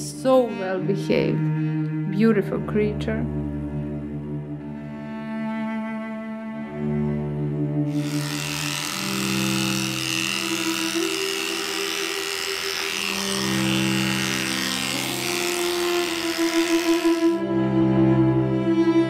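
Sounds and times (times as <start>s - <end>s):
slow cello music: 0.0s - 19.0s
electric clipper running: 7.9s - 17.4s.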